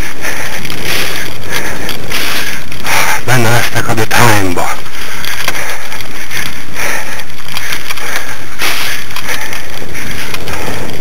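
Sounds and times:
rig rattling over rough grass: 0.0s - 11.0s
person speaking: 3.0s - 4.9s.

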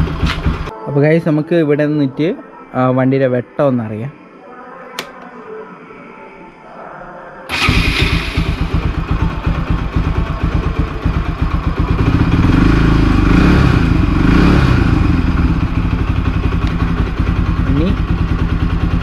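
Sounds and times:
motorcycle engine running: 0.0s - 0.7s, 7.5s - 19.0s.

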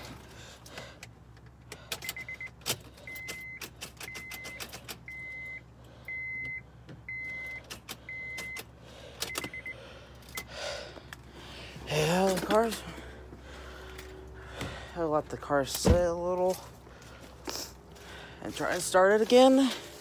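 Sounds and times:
car warning chime beeping: 1.9s - 10.5s.

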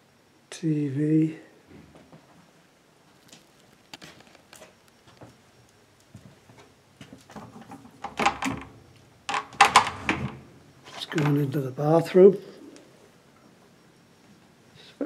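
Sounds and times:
rustling: 3.1s - 5.3s.

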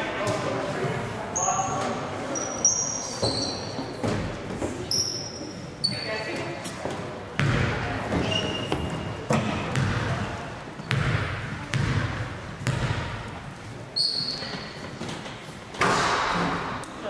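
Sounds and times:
basketball bouncing on gym floor: 7.4s - 13.3s
short high squeak: 14.0s - 14.7s.

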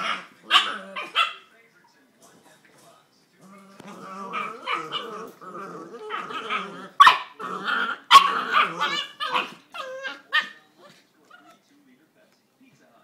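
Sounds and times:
puppies growling and yapping: 0.0s - 1.4s, 3.4s - 11.6s.

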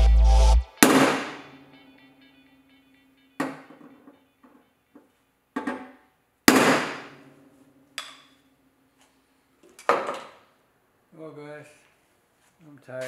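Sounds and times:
hammer blows on sheet steel: 0.8s - 1.5s, 6.5s - 7.2s.

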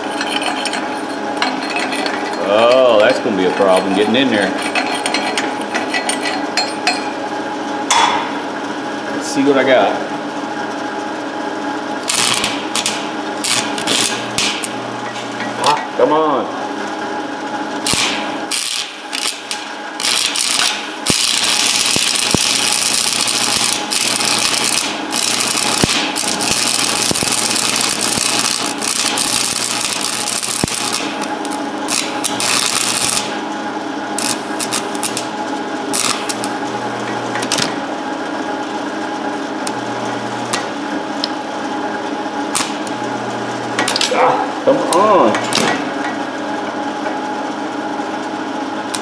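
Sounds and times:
steady hum: 0.0s - 49.0s
welding arc crackling: 12.0s - 15.7s, 17.8s - 33.5s, 34.1s - 37.8s, 42.4s - 43.2s, 43.8s - 44.2s.

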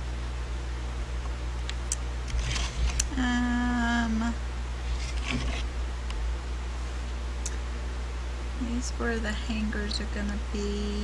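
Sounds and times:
low electrical hum: 0.0s - 11.0s
woman humming: 3.1s - 4.4s.

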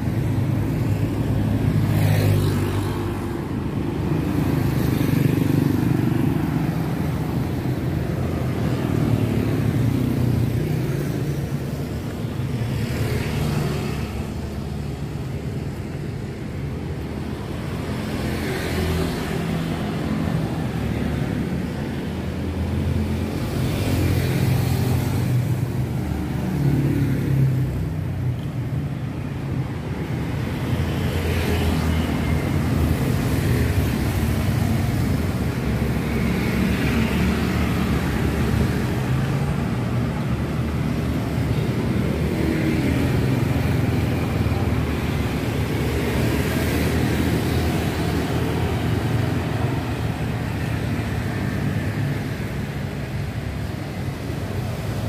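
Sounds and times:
traffic engine hum: 0.0s - 55.0s
vehicles passing: 0.0s - 55.0s.

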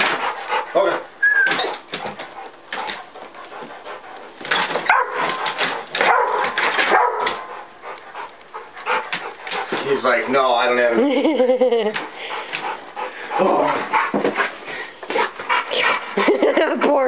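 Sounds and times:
dog whining: 1.2s - 2.0s
dog barking: 4.9s - 7.5s.

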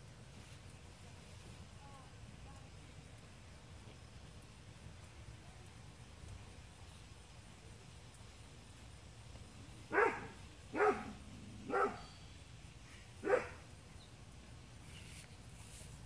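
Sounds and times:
dog barking: 9.9s - 12.1s, 13.2s - 13.6s.

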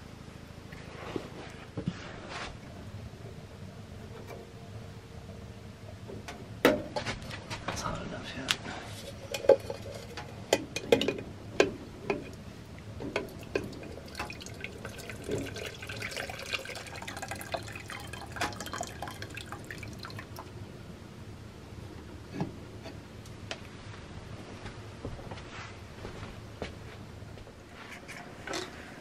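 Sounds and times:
water splashing into metal pot: 13.2s - 20.5s.

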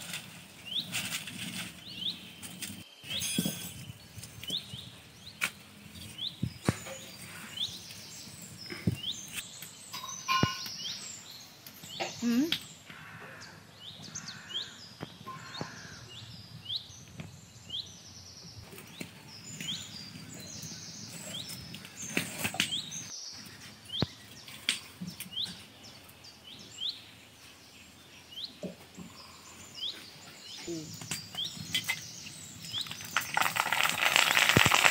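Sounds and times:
small birds chirping: 0.0s - 34.9s.

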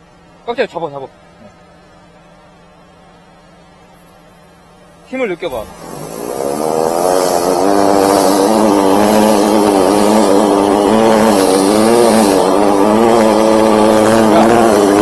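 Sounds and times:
steady droning hum: 0.0s - 15.0s
water jet hissing in pipe: 5.4s - 15.0s.

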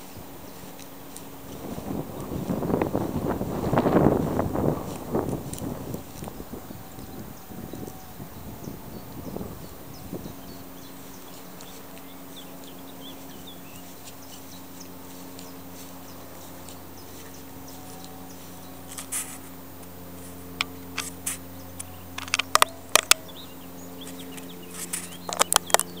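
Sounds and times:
steady low hum: 0.0s - 26.0s
sharp clicks and taps: 20.6s - 23.3s.

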